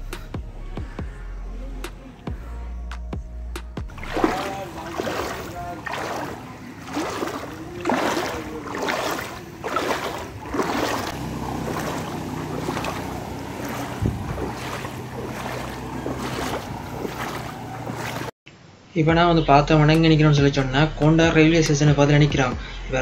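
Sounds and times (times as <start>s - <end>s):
motorcycle engine hum: 0.0s - 18.3s
floodwater sloshing and splashing: 3.9s - 18.4s.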